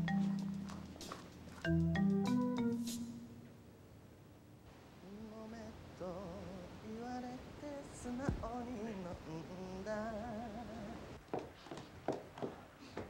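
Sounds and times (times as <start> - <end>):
person singing with vibrato: 5.0 - 11.2.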